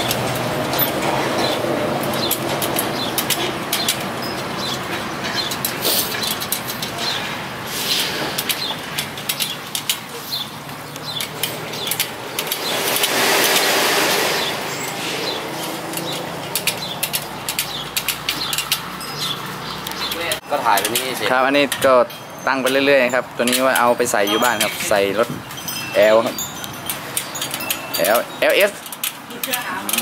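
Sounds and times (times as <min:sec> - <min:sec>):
rushing noise: 0:11.4 - 0:17.6
spoke wrench clicking on spokes: 0:15.6 - 0:22.8.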